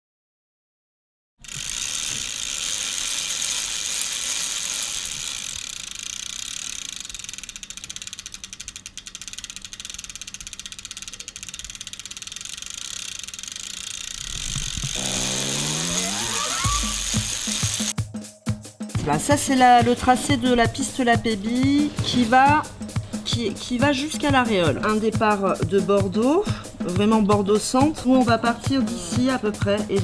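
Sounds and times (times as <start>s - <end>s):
bicycle freewheel ratchet clicking: 1.4s - 18.0s.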